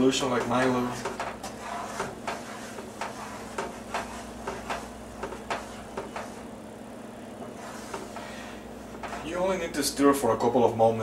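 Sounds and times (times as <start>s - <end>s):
utensil scraping and knocking pan: 0.0s - 6.5s, 7.4s - 9.4s
thick syrup boiling: 0.0s - 9.5s.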